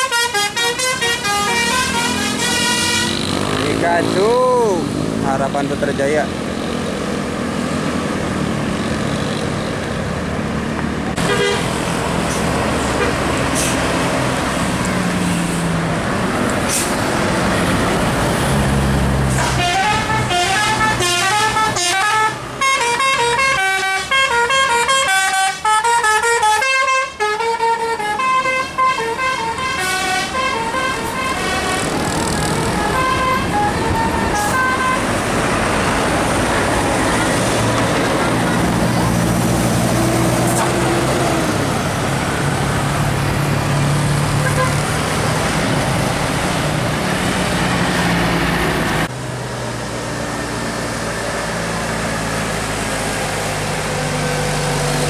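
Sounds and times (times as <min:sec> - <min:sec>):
musical air horn tune: 0:00.0 - 0:03.2, 0:19.4 - 0:31.9, 0:32.6 - 0:35.1
bus engines: 0:00.0 - 0:55.0
passing traffic: 0:00.0 - 0:55.0.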